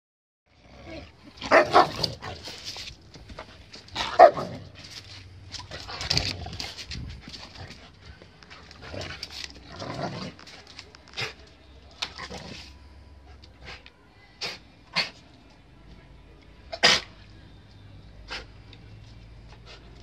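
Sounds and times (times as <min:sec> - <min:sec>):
dogs barking: 0:01.4 - 0:02.3, 0:04.0 - 0:04.7
dogs scuffling: 0:01.5 - 0:12.6.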